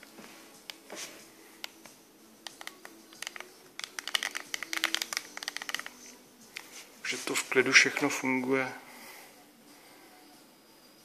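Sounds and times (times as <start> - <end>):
keyboard keys clicking: 2.5 - 6.0.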